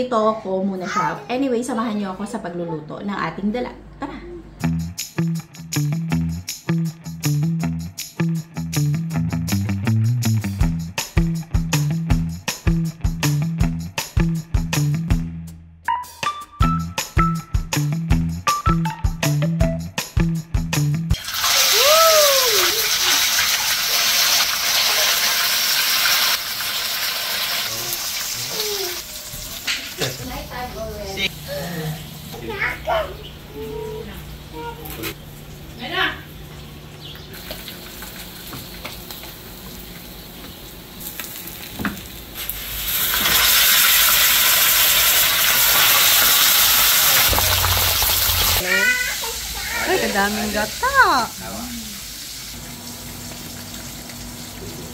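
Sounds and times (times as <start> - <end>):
mallet percussion music: 15.9 - 20.0, 47.3 - 48.6
fish sizzling in hot oil: 21.2 - 30.6, 37.3 - 54.9.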